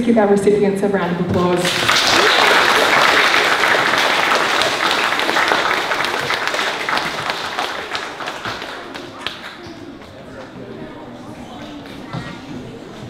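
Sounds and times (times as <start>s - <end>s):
children applauding: 1.6s - 10.7s.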